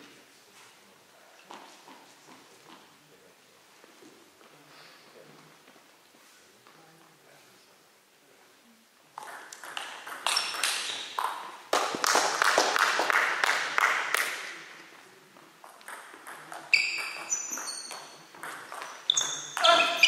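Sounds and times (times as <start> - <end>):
table tennis balls clicking: 9.2 - 11.9, 15.6 - 20.0.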